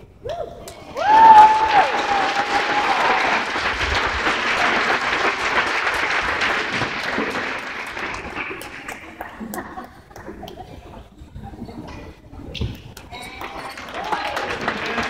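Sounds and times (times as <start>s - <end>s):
high-pitched whoop: 0.2s - 3.4s
audience clapping and cheering: 0.9s - 9.7s, 13.1s - 15.0s.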